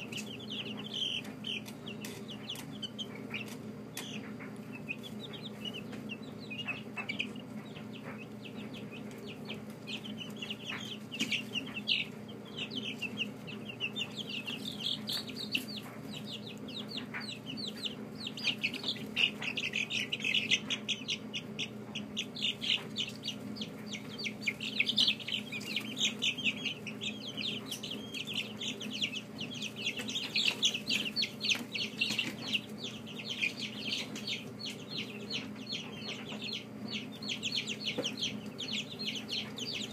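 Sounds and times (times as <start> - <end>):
chicks peeping: 0.0 - 39.9
steady low hum: 0.0 - 39.9.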